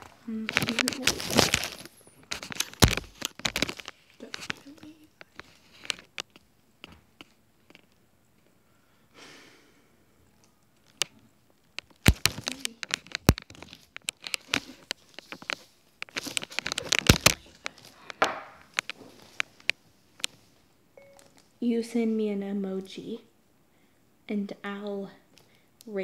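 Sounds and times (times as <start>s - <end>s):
rubbing crackle with clicks: 0.0s - 8.6s, 10.4s - 21.6s.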